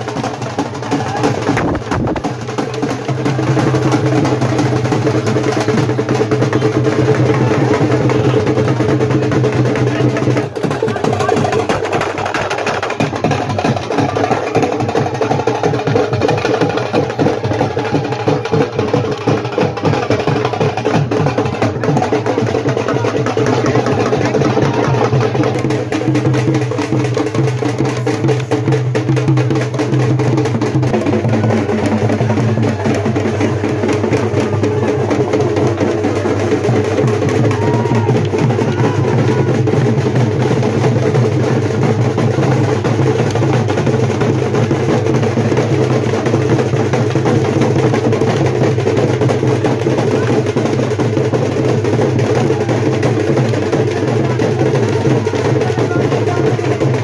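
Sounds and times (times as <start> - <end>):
fast folk drumming: 0.0 - 57.0.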